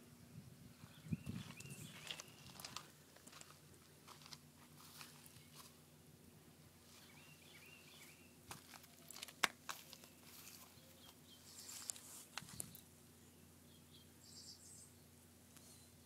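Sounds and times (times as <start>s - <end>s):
faint steady hum: 0.0s - 16.0s
faint bird chirps: 0.8s - 2.8s, 9.9s - 16.0s.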